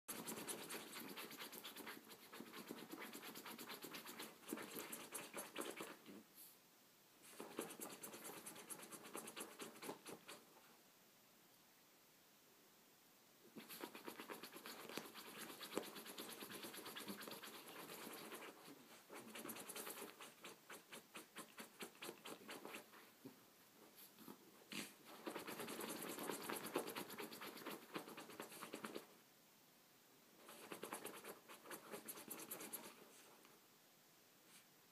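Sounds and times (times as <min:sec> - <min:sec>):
claws scratching on cloth: 0:00.1 - 0:06.1, 0:07.2 - 0:10.5, 0:13.6 - 0:23.0, 0:24.0 - 0:29.1, 0:30.4 - 0:33.4.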